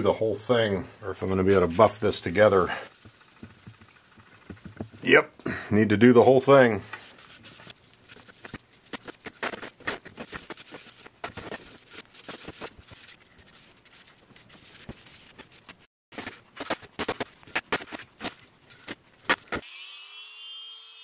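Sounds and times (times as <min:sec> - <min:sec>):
gloved hand rubbing paste on metal: 0:01.5 - 0:05.1, 0:07.0 - 0:15.8.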